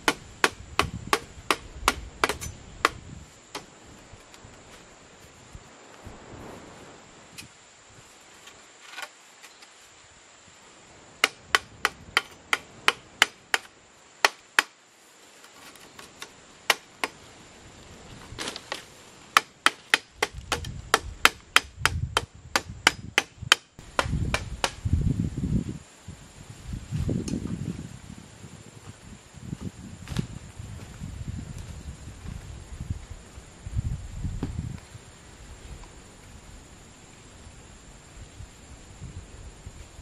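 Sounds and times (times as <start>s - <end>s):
dull low thumps: 0.0s - 3.2s
hand tool striking wood: 0.0s - 3.7s, 11.2s - 14.7s, 15.7s - 17.2s, 18.4s - 24.8s.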